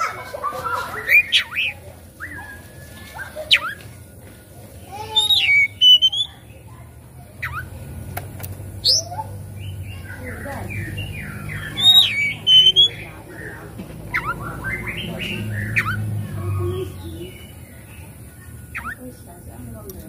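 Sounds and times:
bird singing whistles: 0:05.2 - 0:06.4, 0:10.4 - 0:13.1, 0:14.1 - 0:17.6.

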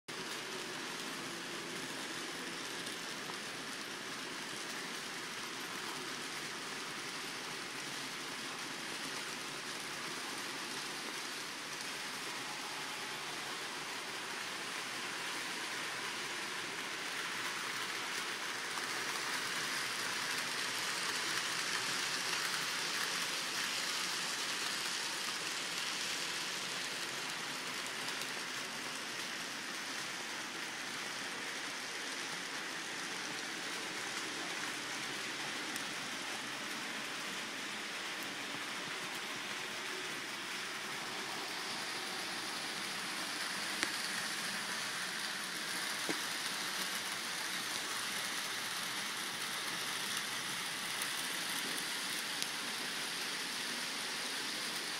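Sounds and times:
model trains whirring on track: 0:00.1 - 0:54.9.

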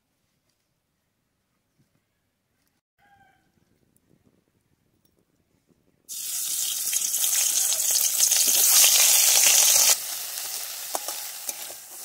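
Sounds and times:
vegetables sizzling in hot oil: 0:06.1 - 0:12.0.

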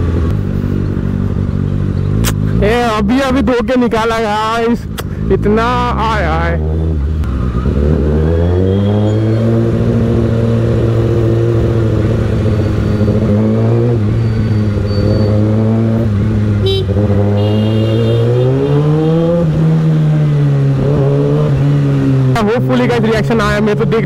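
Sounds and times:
motorcycle engine accelerating: 0:00.0 - 0:24.0
vehicle horn beeping: 0:16.6 - 0:18.8.

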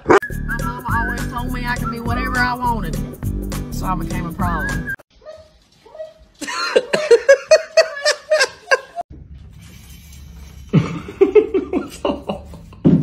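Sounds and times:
person laughing: 0:06.4 - 0:09.0, 0:10.7 - 0:12.9.

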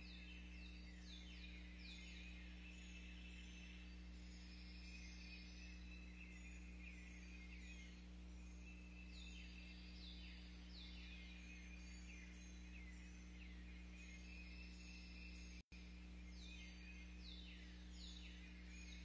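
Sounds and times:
birds singing: 0:00.0 - 0:19.0
low hum: 0:00.0 - 0:19.0.

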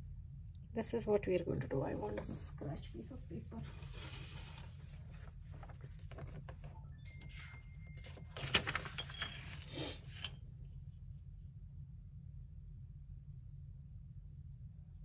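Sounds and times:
paper rustling and sliding: 0:03.6 - 0:10.2.

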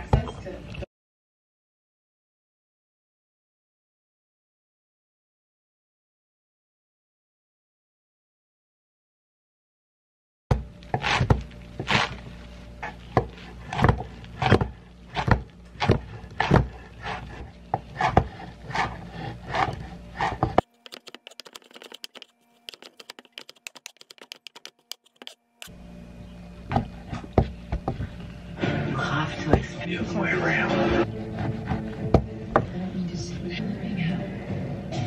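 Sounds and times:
knife chopping on wooden board: 0:10.5 - 0:12.2, 0:12.8 - 0:25.4.

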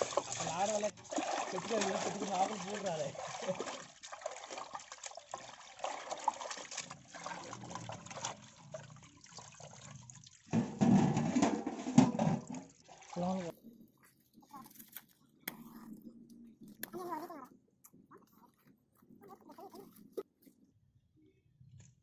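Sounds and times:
water splashing in a steel pot: 0:00.0 - 0:13.6.

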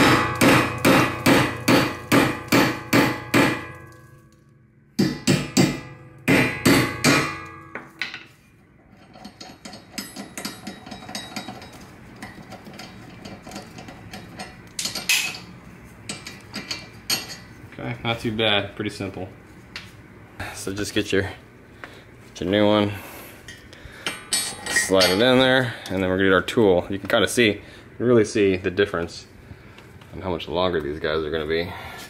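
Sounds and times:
hammer striking metal: 0:00.0 - 0:08.3, 0:24.0 - 0:25.5.

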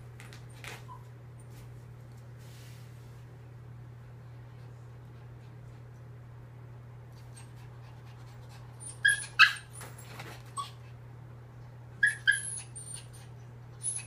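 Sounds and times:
steady low hum: 0:00.0 - 0:14.0
small dog yipping: 0:08.8 - 0:09.9, 0:12.0 - 0:14.0.

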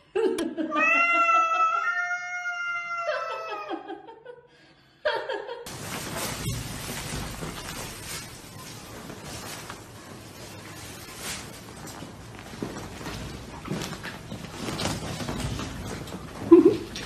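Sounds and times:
cat yowling: 0:00.7 - 0:03.8
noisy rustle: 0:05.7 - 0:17.0.

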